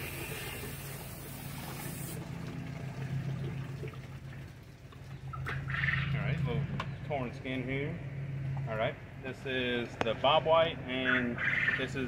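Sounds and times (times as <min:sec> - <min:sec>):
water spraying from hose: 0:00.0 - 0:05.0.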